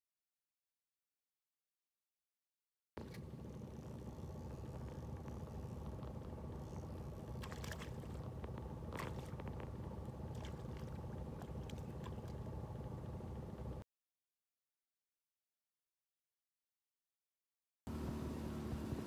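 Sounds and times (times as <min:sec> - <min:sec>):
boat motor idling: 0:03.0 - 0:13.8.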